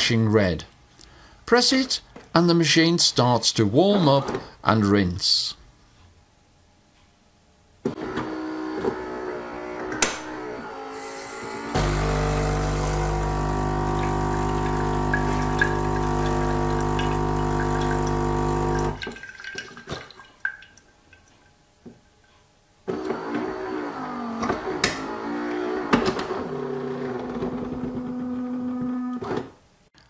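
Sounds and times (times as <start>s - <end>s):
espresso machine mechanical whir: 7.9s - 19.0s, 22.9s - 29.2s
vibration pump buzzing: 8.0s - 19.0s, 22.9s - 29.2s
water running into jug: 11.8s - 21.3s
water dripping: 13.8s - 21.6s.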